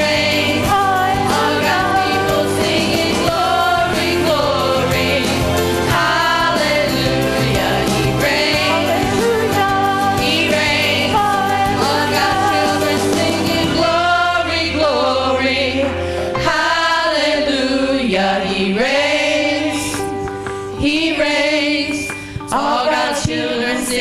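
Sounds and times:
sustained instrumental backing: 0.0s - 18.3s
women's group singing gospel: 0.0s - 20.2s, 20.8s - 24.0s.

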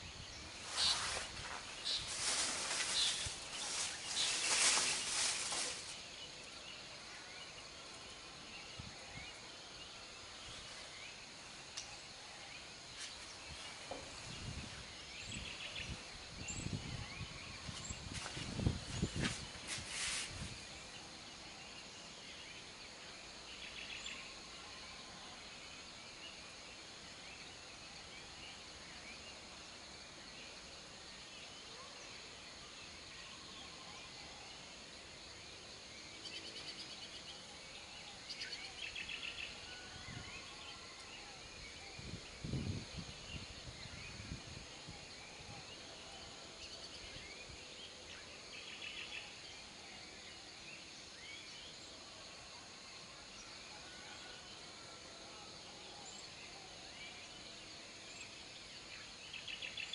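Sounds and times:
high insect drone: 0.0s - 31.6s.

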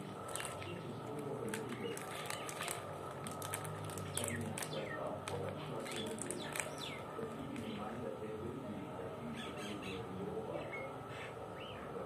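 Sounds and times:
plastic wrapper crinkling: 0.3s - 0.7s, 1.5s - 7.7s.

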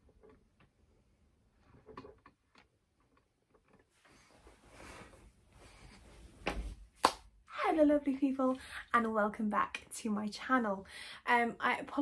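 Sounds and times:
soft faint hiss: 3.9s - 11.3s.

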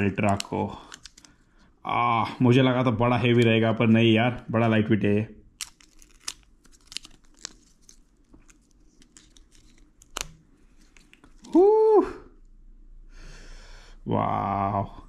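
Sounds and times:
plastic film peeling and crinkling: 0.0s - 1.4s, 5.6s - 11.6s
rustling: 5.6s - 11.6s.

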